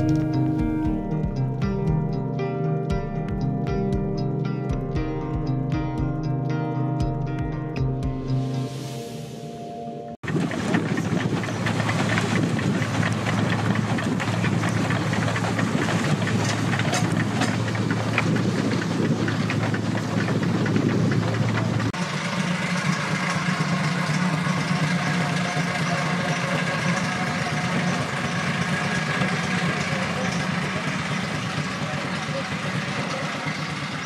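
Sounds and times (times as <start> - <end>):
steam engine running: 0.0 - 2.1, 10.2 - 34.0
mechanical knocking and clatter: 10.2 - 22.0.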